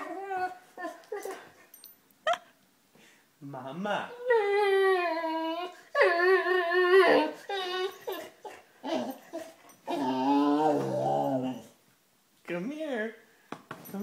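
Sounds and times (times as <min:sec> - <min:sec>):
dog whining: 0:00.0 - 0:01.6, 0:04.1 - 0:11.8.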